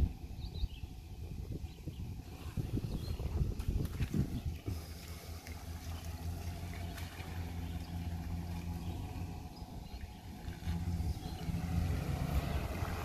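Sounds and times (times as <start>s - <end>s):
tyres on wet pavement: 3.4s - 13.0s
truck engine running: 4.3s - 13.0s.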